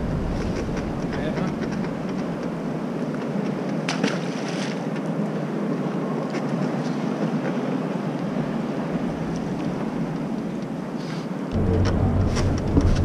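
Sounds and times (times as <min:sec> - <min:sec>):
wind rushing over microphone: 0:00.0 - 0:03.8.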